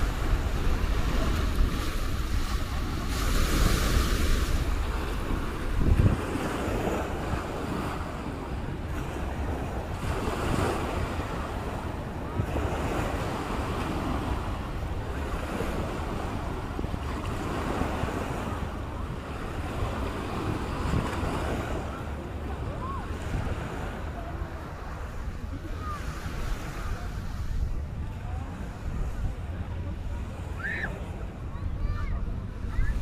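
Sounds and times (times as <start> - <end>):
small waves washing up beach: 0.0 - 32.0
wind rumbling on microphone: 0.0 - 33.0.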